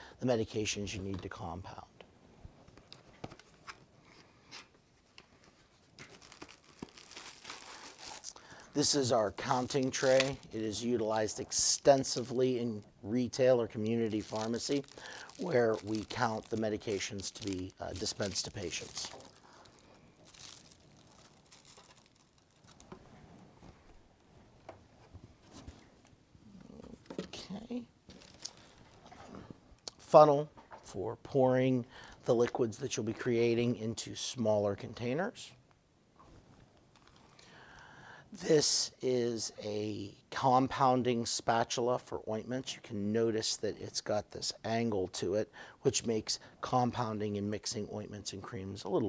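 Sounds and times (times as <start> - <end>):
plastic bags rustling: 5.6 - 23.9, 27.4 - 29.5.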